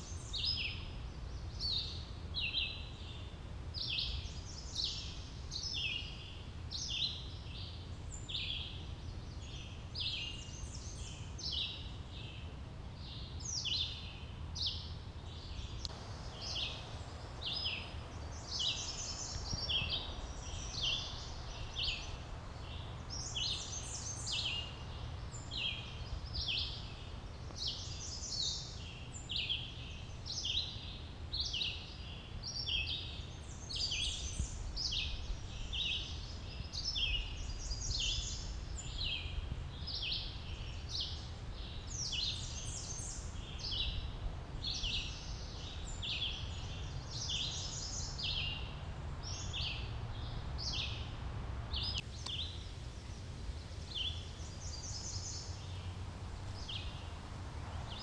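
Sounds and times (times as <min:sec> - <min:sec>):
songbirds chirping and singing: 0:00.0 - 0:58.0
steady low rumble: 0:15.3 - 0:28.1.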